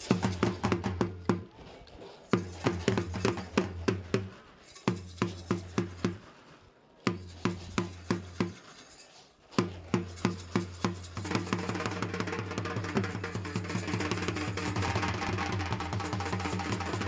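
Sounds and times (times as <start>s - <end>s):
drum beats: 0.0s - 1.6s, 2.3s - 6.4s, 7.0s - 8.6s, 9.6s - 17.0s.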